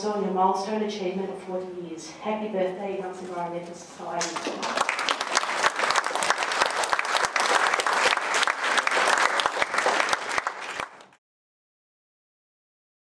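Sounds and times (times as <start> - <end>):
audience applauding: 4.2 - 11.2.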